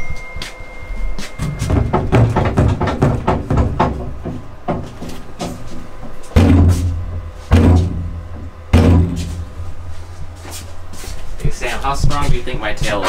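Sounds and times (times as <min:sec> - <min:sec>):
heavy deep thumps: 0:01.5 - 0:05.6, 0:06.2 - 0:09.9.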